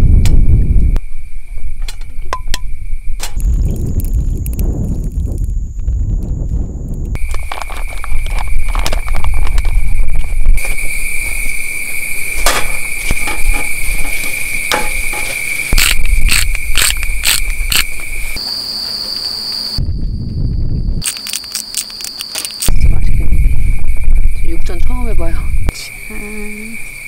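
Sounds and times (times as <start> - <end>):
crickets trilling: 0.0 - 27.0
pepper shaker clicking: 15.7 - 17.9, 21.0 - 22.7.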